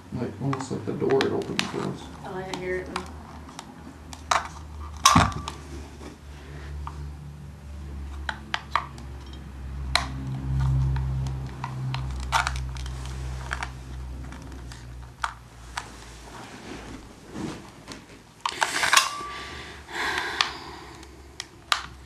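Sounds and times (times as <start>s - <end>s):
sharp clicks and taps: 0.5s - 1.8s.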